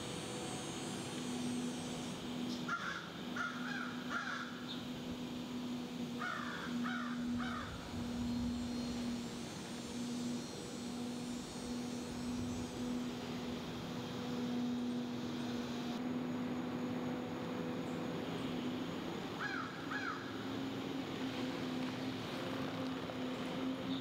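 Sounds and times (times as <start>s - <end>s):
steady low hum: 0.0s - 24.0s
crows cawing: 2.7s - 4.6s, 6.2s - 7.8s, 19.4s - 20.4s.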